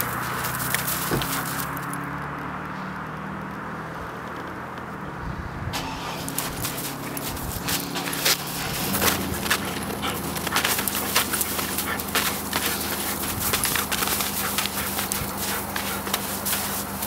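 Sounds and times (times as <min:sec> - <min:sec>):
dog digging in crunchy snow: 0:00.0 - 0:02.0, 0:05.9 - 0:17.0.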